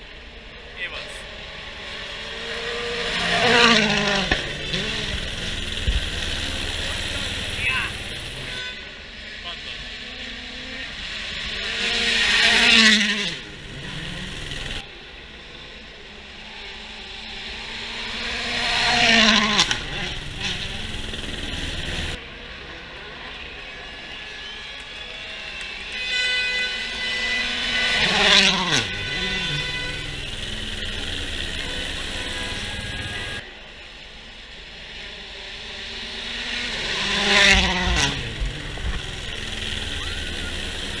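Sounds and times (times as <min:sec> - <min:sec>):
rally car engine passing by: 0:00.9 - 0:22.2, 0:26.0 - 0:33.5, 0:34.8 - 0:41.0.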